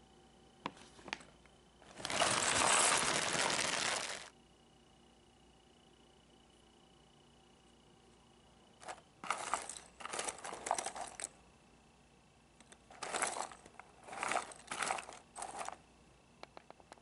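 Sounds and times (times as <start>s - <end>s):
puzzle pieces rattling in box: 1.9s - 4.3s, 8.8s - 11.3s, 12.9s - 15.8s.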